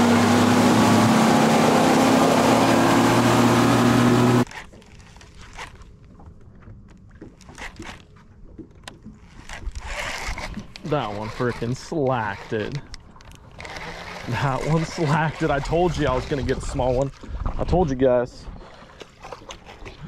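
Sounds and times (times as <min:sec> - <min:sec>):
hull spray: 0:00.0 - 0:04.4
outboard motor running: 0:00.0 - 0:05.5, 0:06.5 - 0:20.0
wind: 0:00.0 - 0:20.0.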